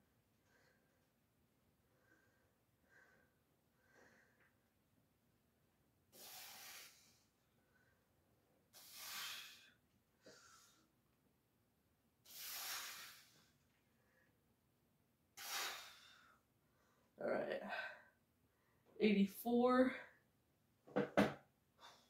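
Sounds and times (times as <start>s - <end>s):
man exhaling forcefully: 6.2s - 7.1s, 8.8s - 9.7s, 12.3s - 13.4s, 15.4s - 16.2s.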